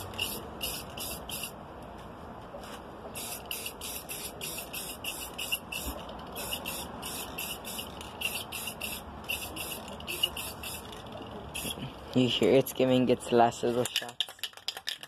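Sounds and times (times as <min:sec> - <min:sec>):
aerosol can spraying bursts: 0:00.0 - 0:01.5, 0:03.2 - 0:10.9.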